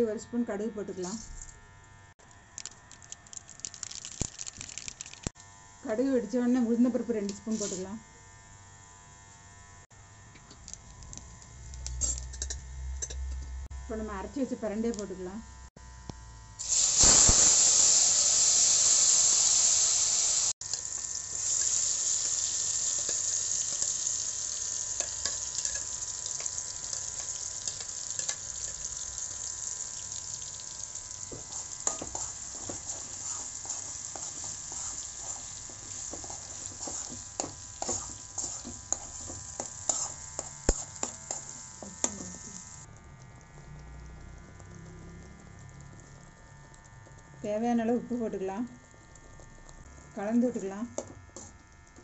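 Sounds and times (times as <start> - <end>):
paste sizzling in hot oil: 16.6 - 42.9
spoon scraping pan: 31.4 - 41.5.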